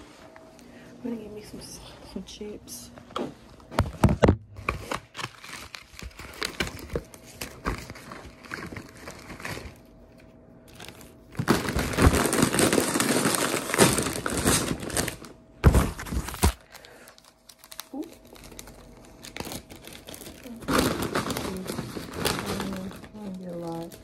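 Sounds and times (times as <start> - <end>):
packaging crinkling: 4.5 - 24.0.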